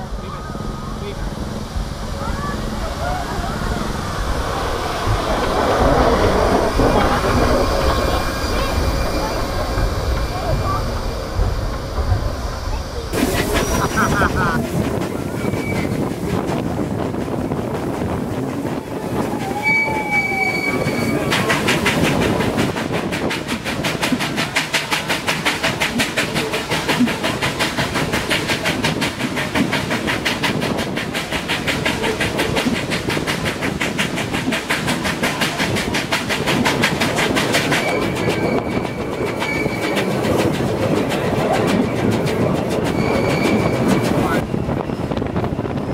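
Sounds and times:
steam locomotive exhaust chuffs: 0:00.0 - 0:45.8
train coaches running: 0:00.0 - 0:45.9
high steady squeal: 0:00.1 - 0:14.0, 0:15.1 - 0:16.2, 0:18.9 - 0:21.7, 0:37.5 - 0:40.4, 0:42.8 - 0:45.3.

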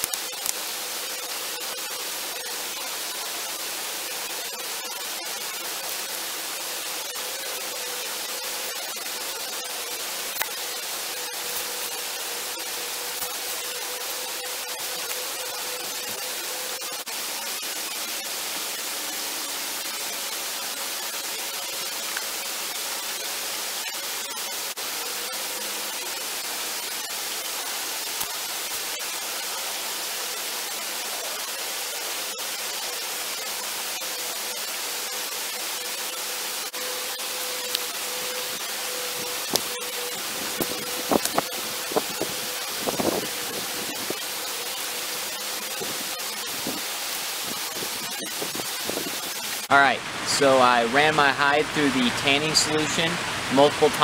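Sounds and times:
steady hiss: 0:00.0 - 0:54.0.

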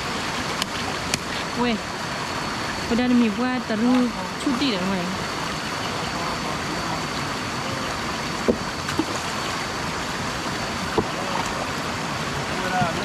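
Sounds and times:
stream water rushing: 0:00.0 - 0:13.0.

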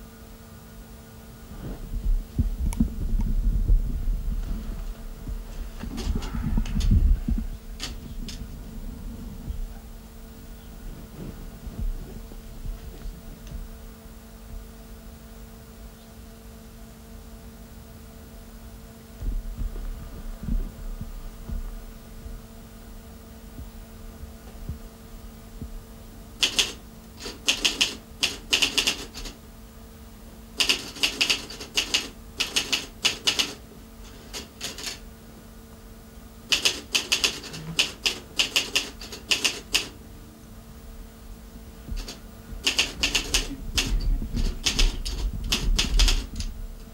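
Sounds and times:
steady low hum: 0:00.0 - 0:46.9
typewriter key strikes: 0:26.4 - 0:29.4, 0:30.6 - 0:33.6, 0:34.3 - 0:35.0, 0:36.5 - 0:39.9, 0:42.0 - 0:46.5.

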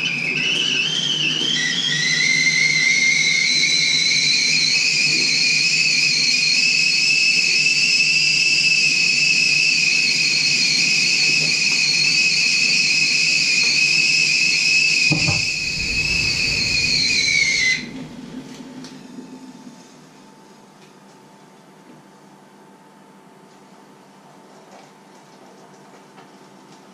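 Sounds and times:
kettle whistling: 0:00.0 - 0:19.8
low thump: 0:15.1 - 0:18.6.

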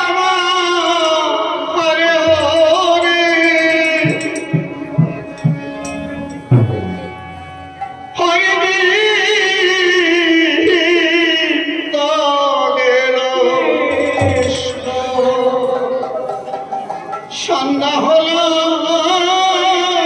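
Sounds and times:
devotional music with vibrato melody: 0:01.9 - 0:11.9, 0:13.0 - 0:18.2
held tones: 0:02.3 - 0:08.2, 0:13.4 - 0:17.3.

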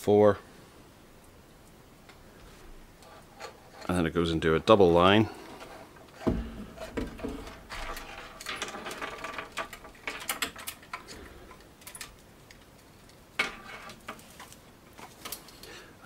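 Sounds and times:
cable clicks and rustles: 0:05.2 - 0:15.8.

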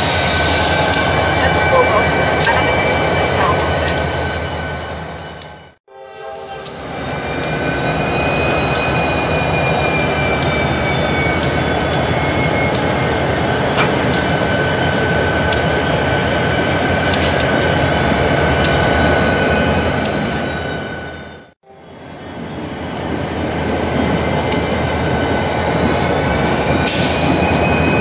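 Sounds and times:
diesel locomotives rumbling past: 0:00.0 - 0:28.0
high wheel squeal: 0:07.0 - 0:15.2, 0:26.2 - 0:28.0.

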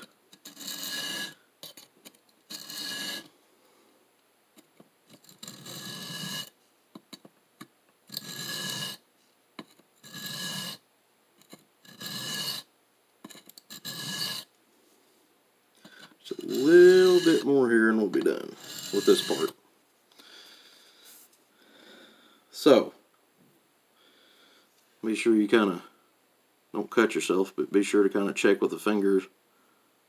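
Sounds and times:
knife scraping on sharpening plate: 0:00.0 - 0:01.8, 0:02.5 - 0:03.3, 0:05.2 - 0:06.5, 0:08.1 - 0:09.0, 0:10.0 - 0:10.8, 0:11.8 - 0:12.7, 0:13.3 - 0:14.5, 0:16.3 - 0:17.4, 0:18.6 - 0:19.5.

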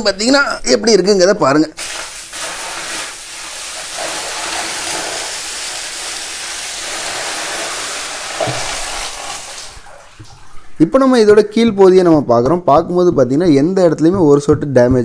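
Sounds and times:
water pouring and splashing: 0:01.8 - 0:10.8.

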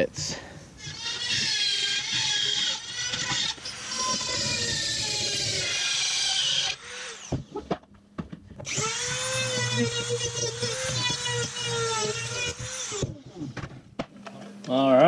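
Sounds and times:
rotary tool cutting plastic: 0:00.8 - 0:07.8, 0:08.6 - 0:13.4.

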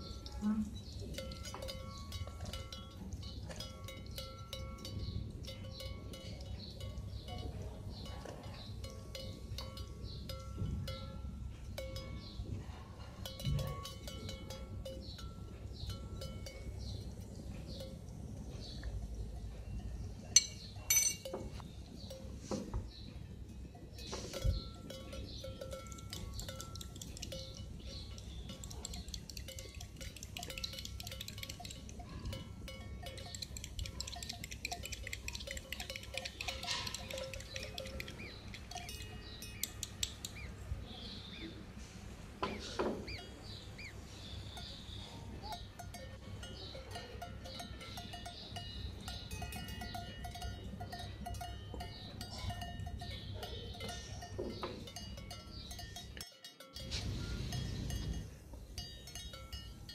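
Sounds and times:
spoon clinking in glass bowl: 0:19.4 - 0:22.2, 0:24.0 - 0:40.5.

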